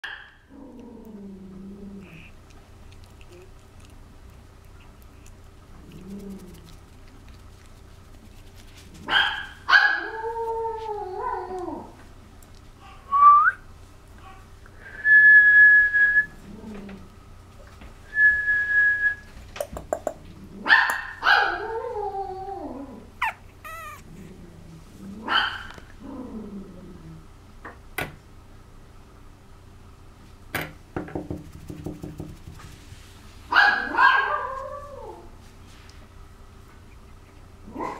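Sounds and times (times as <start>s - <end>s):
puppy whining: 0.5s - 4.0s, 4.6s - 12.0s, 21.4s - 26.5s
puppy yapping: 9.0s - 11.9s, 23.2s - 24.3s, 25.2s - 25.8s, 33.5s - 35.2s, 37.7s - 37.9s.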